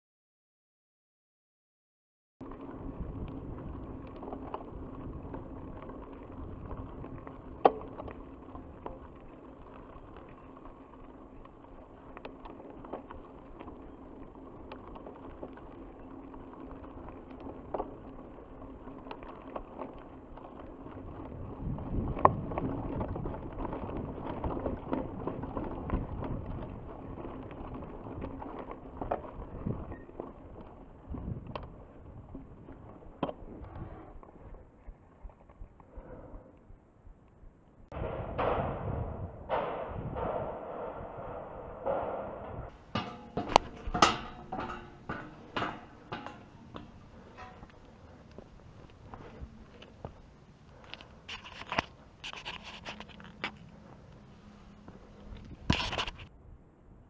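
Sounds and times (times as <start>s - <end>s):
bike rattling: 2.4s - 36.3s, 37.4s - 56.4s
bike tyres on gravel: 2.4s - 57.0s
sharp knocks over bumps: 37.9s - 49.4s.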